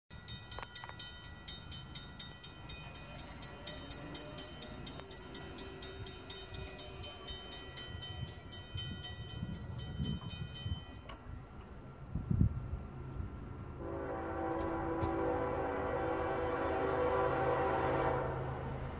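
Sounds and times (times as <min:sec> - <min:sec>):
crossing warning bell ringing: 0:00.1 - 0:12.1.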